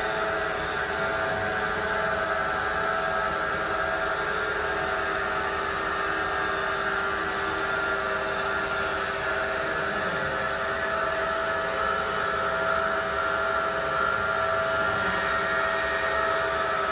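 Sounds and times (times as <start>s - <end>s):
foam-cutting machine whine: 0.0s - 16.9s.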